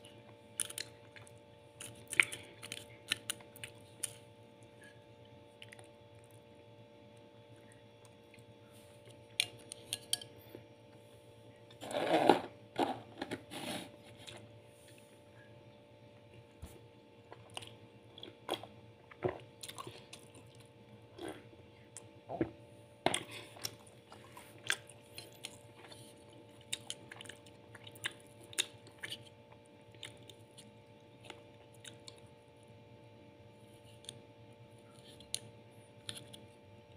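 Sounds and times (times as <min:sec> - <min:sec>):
chewing: 0:05.6 - 0:06.4, 0:17.2 - 0:22.1, 0:23.1 - 0:32.3.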